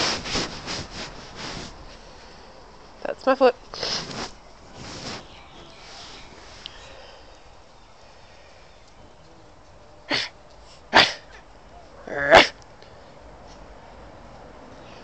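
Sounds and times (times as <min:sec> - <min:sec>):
puppy huffing and barking: 0:10.9 - 0:11.4, 0:12.1 - 0:12.6.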